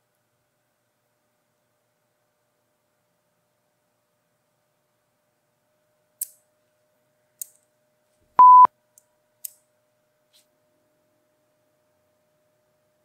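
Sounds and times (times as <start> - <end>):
loud steady beep: 8.4 - 8.7.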